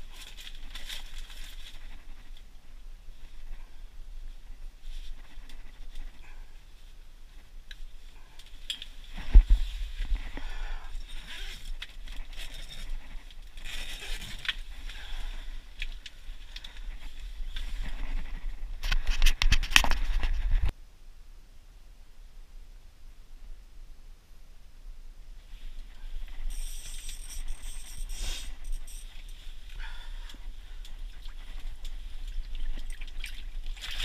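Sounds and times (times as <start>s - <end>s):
clothing and gear rustling: 0.0s - 2.4s, 11.0s - 20.7s.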